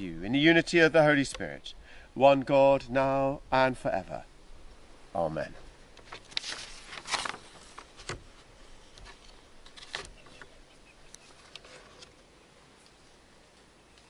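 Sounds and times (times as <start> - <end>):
pages rustling: 6.0 - 10.5, 11.1 - 12.2.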